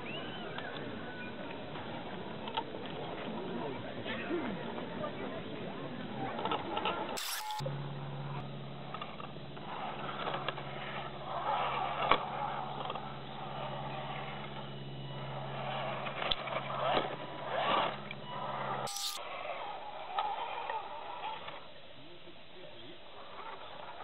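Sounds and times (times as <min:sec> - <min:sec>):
electric motors humming: 0:06.2 - 0:21.6.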